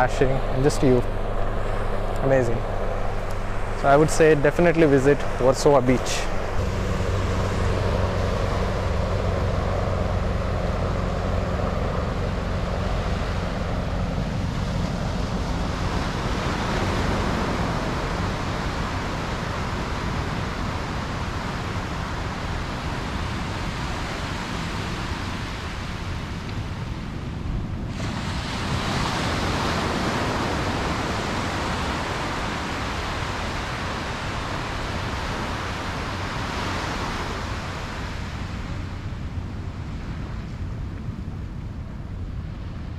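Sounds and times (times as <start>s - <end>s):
sea waves breaking on beach: 0.0s - 27.2s, 27.9s - 40.4s
low steady hum: 0.0s - 28.1s
wind on microphone: 0.0s - 42.9s.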